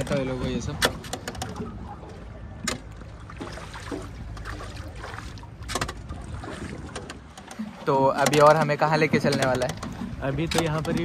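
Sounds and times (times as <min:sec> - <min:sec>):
wind rumble on microphone: 0:00.0 - 0:07.4
water lapping along hull: 0:00.0 - 0:11.0.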